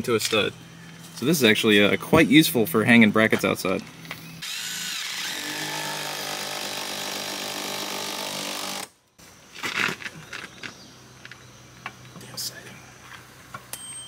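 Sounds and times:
cordless drill running: 0:04.4 - 0:08.9.

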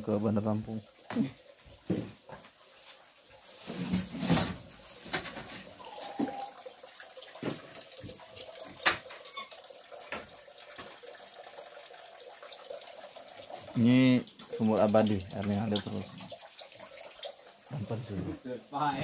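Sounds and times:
water running and splashing: 0:04.8 - 0:18.5.

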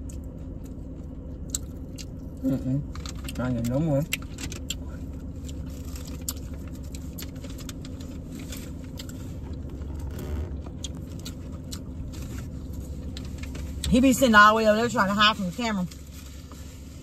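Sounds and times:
clicks and rustles of handling food: 0:00.0 - 0:09.7
car idling hum inside cabin: 0:00.0 - 0:17.0.

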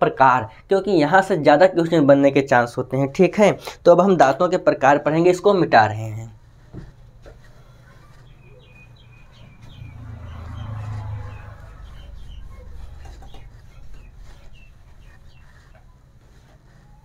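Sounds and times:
duster rubbing marker board: 0:10.5 - 0:17.0.

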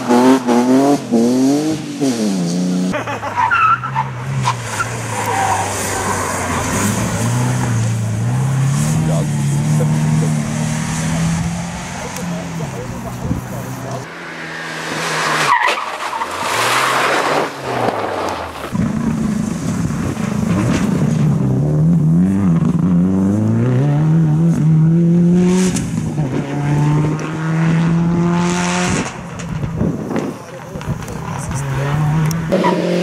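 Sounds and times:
rally car engine revving: 0:00.0 - 0:33.0
tyres sliding on gravel: 0:11.8 - 0:21.4.

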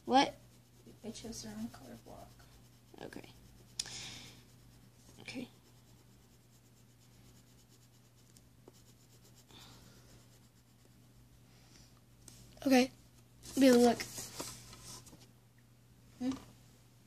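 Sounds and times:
crayon scratching on paper: 0:00.0 - 0:11.0.

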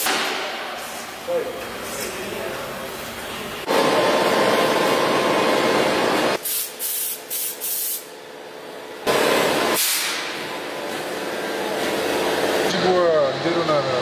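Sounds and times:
spray gun hissing: 0:06.4 - 0:08.1.

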